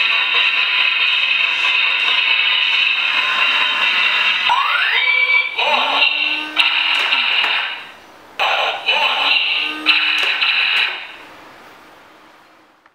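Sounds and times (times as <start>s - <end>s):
synthesized robotic voice: 4.5s - 11.2s.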